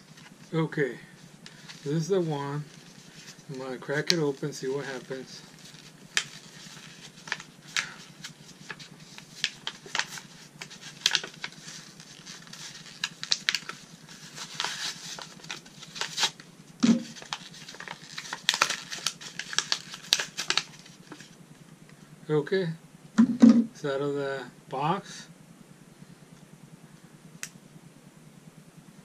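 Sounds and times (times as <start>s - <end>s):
plastic blister pack crackling: 1.4s - 21.4s.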